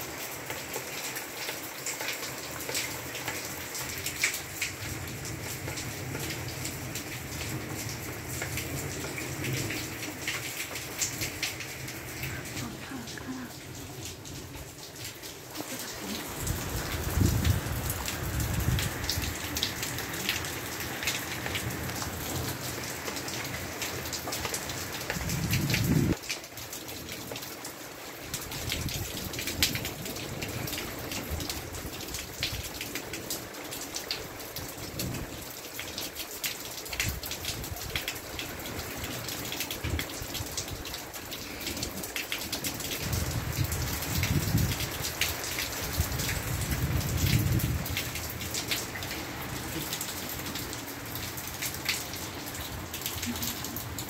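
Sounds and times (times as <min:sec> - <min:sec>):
steady rain falling: 0:00.0 - 0:54.0
low rumbles of thunder: 0:16.1 - 0:22.9, 0:25.1 - 0:26.2, 0:42.9 - 0:45.2, 0:45.8 - 0:48.6.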